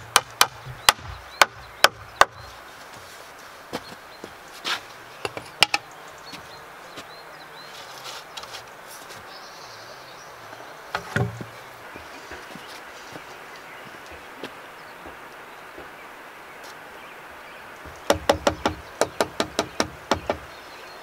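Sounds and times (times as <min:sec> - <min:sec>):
wooden knocks and clicks: 0:05.2 - 0:05.8, 0:10.9 - 0:12.1.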